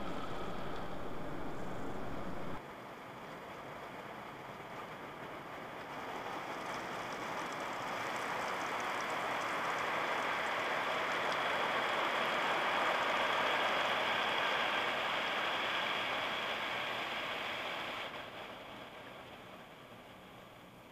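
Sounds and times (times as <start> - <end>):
rotating wash brush: 0.0 - 2.6
water spraying on car: 0.0 - 2.6, 5.5 - 20.8.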